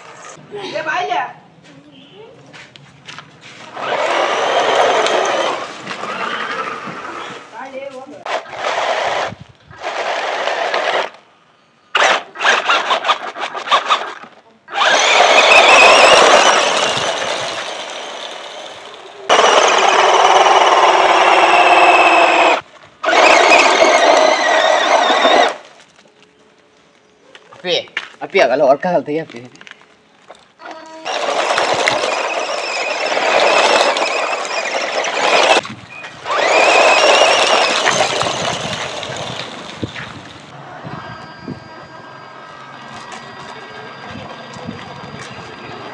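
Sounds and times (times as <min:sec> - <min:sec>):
tyres scrabbling on gravel: 0:02.6 - 0:11.1, 0:12.5 - 0:27.0, 0:29.2 - 0:40.6
rc truck motor whine: 0:03.7 - 0:07.4, 0:08.3 - 0:11.2, 0:11.9 - 0:25.7, 0:31.0 - 0:45.9
tyres hissing on gravel: 0:36.4 - 0:40.6.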